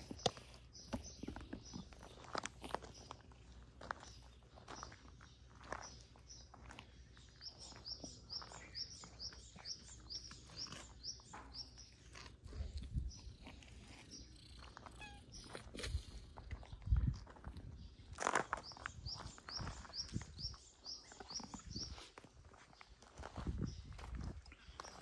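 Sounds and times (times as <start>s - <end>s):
bird chirping: 0.0s - 15.8s, 17.7s - 25.0s
cat paws crunching on gravel: 0.0s - 25.0s.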